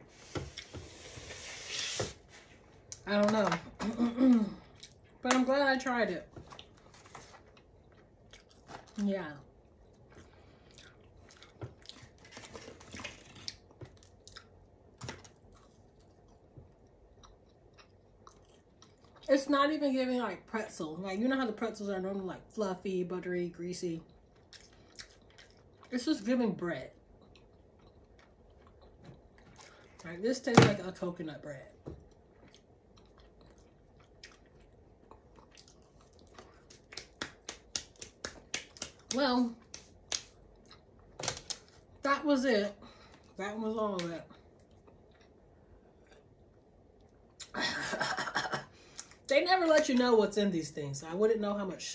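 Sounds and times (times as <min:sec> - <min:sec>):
person chewing: 0:04.6 - 0:05.2, 0:07.4 - 0:09.0, 0:09.6 - 0:19.3, 0:24.1 - 0:25.9, 0:26.9 - 0:30.0, 0:32.0 - 0:41.2, 0:44.3 - 0:47.5.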